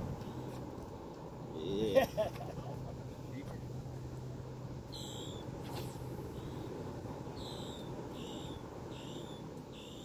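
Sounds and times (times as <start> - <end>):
low background rumble: 0.0 - 10.0
bird calling: 4.9 - 10.0.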